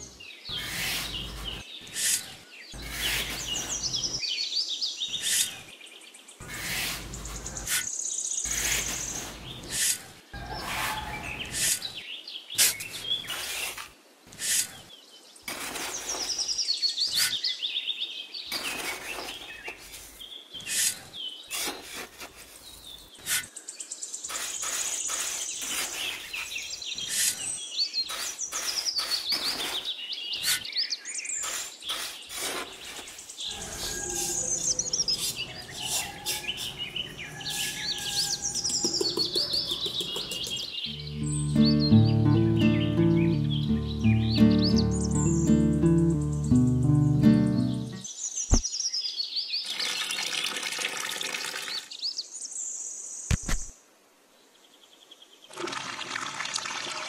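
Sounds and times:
small birds chirping: 0:00.0 - 0:50.5, 0:51.2 - 0:55.6
trowel scraping cement mix: 0:00.5 - 0:04.0, 0:12.6 - 0:14.8, 0:15.5 - 0:16.5, 0:18.5 - 0:23.5, 0:24.3 - 0:27.5, 0:28.1 - 0:30.6, 0:31.4 - 0:40.6.

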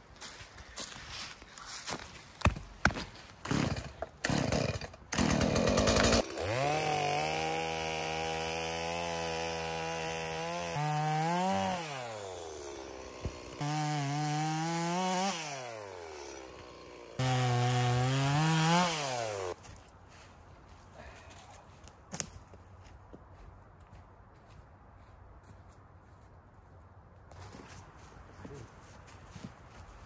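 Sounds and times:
chainsaw revving: 0:03.4 - 0:19.6.

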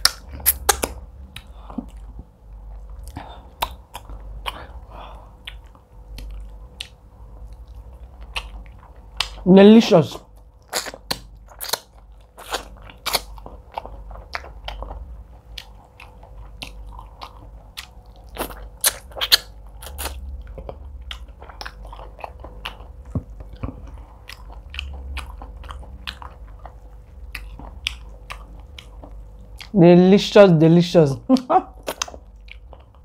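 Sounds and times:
wet mouth clicks and smacks: 0:00.0 - 0:02.2, 0:02.8 - 0:04.7, 0:05.4 - 0:09.4, 0:10.6 - 0:13.4, 0:15.5 - 0:20.2, 0:31.4 - 0:33.0
close chewing of food: 0:00.0 - 0:29.8, 0:31.3 - 0:33.0.

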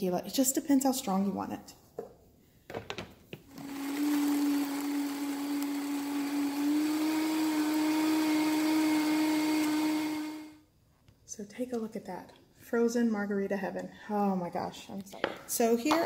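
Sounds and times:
blender motor running: 0:03.5 - 0:10.6.

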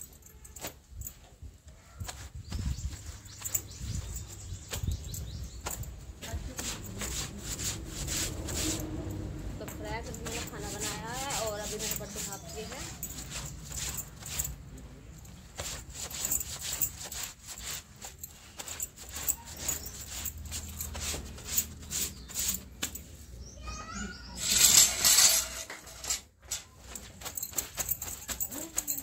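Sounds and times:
scrub brush scraping wet clothes: 0:06.2 - 0:14.6, 0:15.5 - 0:23.0.

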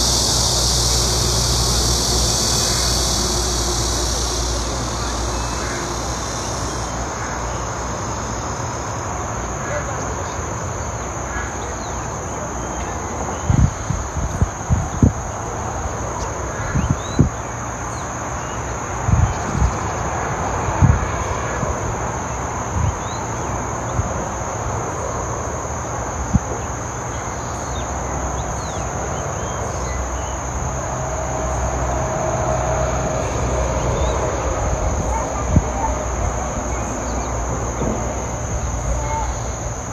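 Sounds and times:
constant hiss: 0:00.0 - 0:20.2
high-pitched insect drone: 0:00.0 - 0:39.9.

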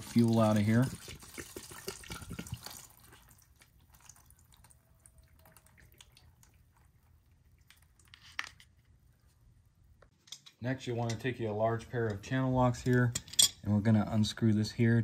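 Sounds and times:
fuel splashing into plastic pan: 0:00.0 - 0:07.0
faint dripping: 0:00.0 - 0:08.1.

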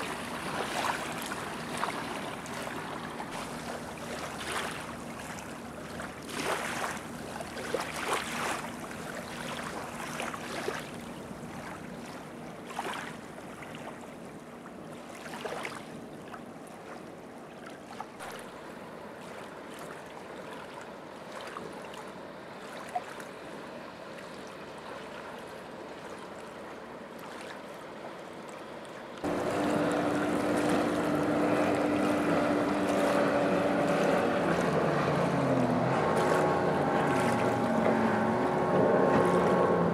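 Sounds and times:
boat engine drone: 0:00.0 - 0:12.6, 0:27.9 - 0:39.9
water lapping on stony shore: 0:00.0 - 0:39.9.

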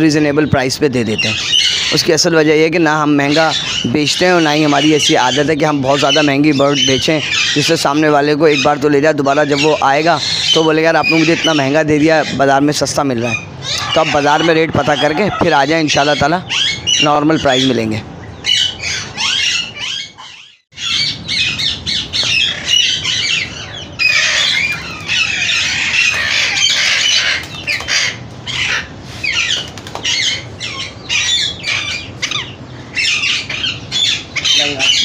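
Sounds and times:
parrots squawking: 0:00.0 - 0:35.0.

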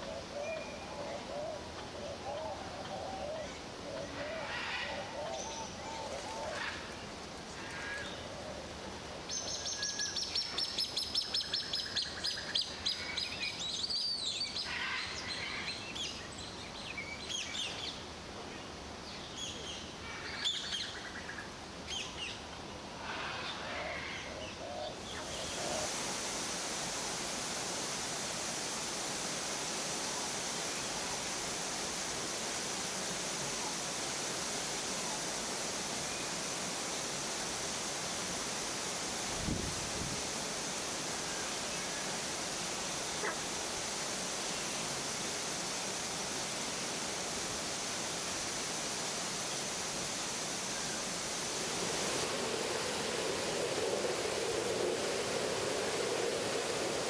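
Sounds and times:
steady rushing noise: 0:49.3 - 0:57.0.

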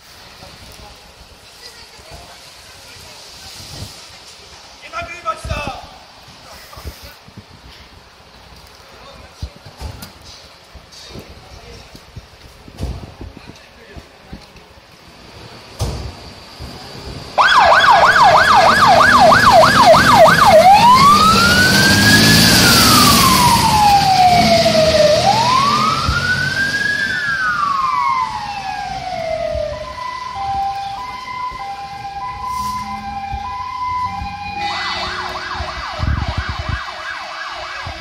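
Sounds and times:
fire engine siren: 0:16.7 - 0:38.0.

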